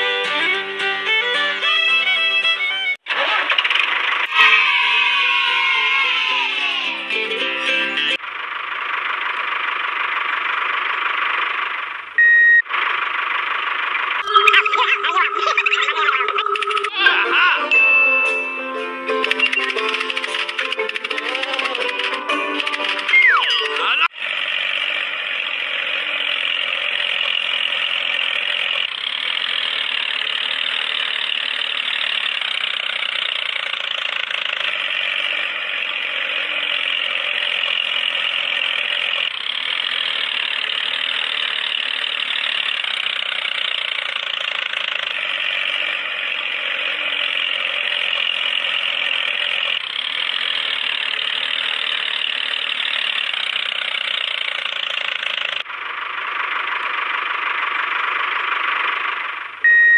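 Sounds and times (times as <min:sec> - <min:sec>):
toy motor whirring whine: 0:19.2 - 0:24.0.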